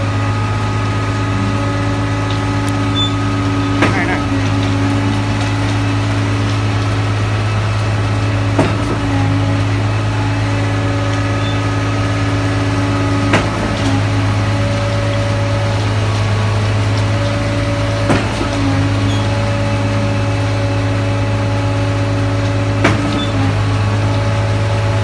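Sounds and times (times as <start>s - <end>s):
engine humming: 0.0s - 25.0s.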